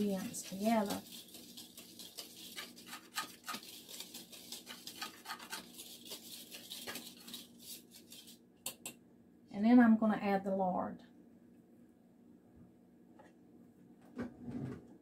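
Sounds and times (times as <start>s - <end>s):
whisk stirring flour in a bowl: 0.0s - 8.9s.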